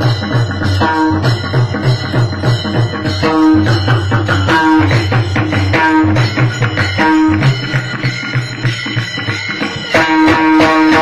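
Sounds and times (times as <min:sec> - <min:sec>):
hand drum rhythm: 0:00.0 - 0:11.0.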